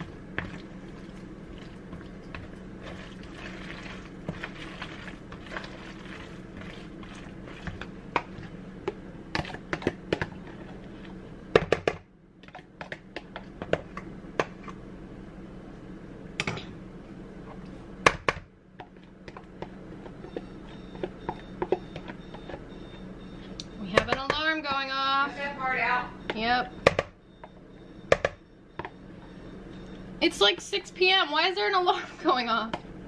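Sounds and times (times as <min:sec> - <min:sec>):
steady low hum: 0:00.0 - 0:33.0
spoon stirring pasta in bowl: 0:00.3 - 0:11.2.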